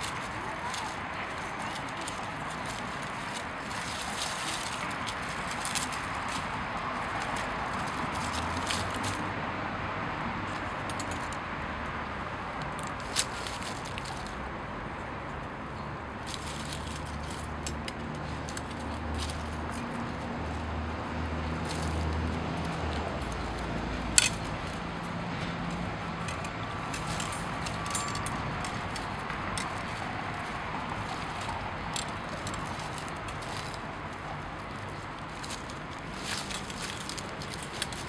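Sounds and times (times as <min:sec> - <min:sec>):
wire scraping: 0:21.6 - 0:38.0.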